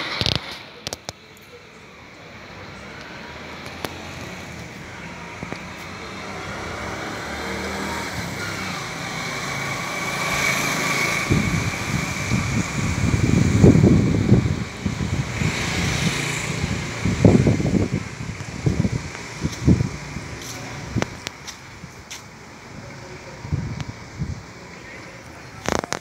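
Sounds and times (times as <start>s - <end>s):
vehicle passing: 2.4s - 23.6s
wind buffeting microphone: 8.0s - 24.5s.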